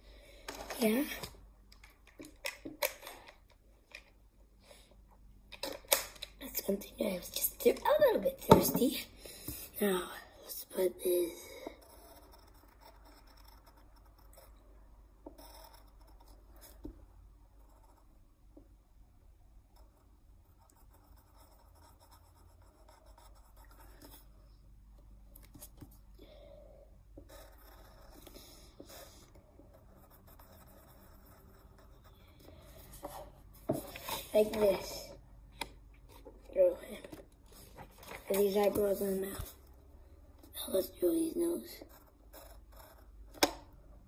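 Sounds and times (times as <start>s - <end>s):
pencil scratching on paper: 10.8s - 14.7s, 15.3s - 16.9s, 17.6s - 18.2s, 19.7s - 24.4s, 27.2s - 34.9s, 41.7s - 43.2s.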